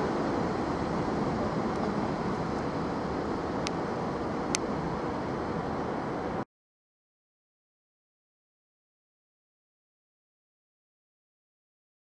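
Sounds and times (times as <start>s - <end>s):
diesel train rumbling on rails: 0.0s - 6.4s.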